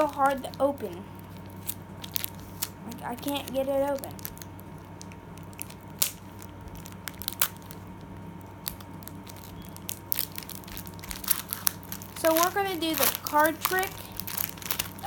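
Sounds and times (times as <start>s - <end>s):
foil wrapper tearing: 0.0s - 15.0s.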